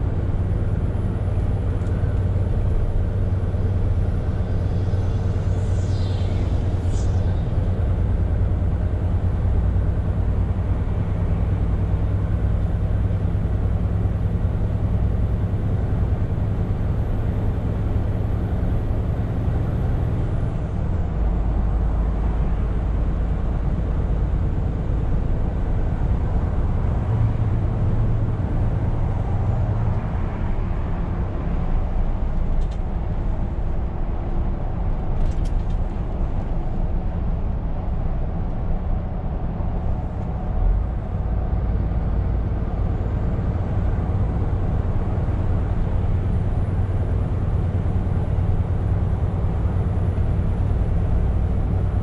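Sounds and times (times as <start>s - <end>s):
truck engine drone: 0.0s - 52.0s.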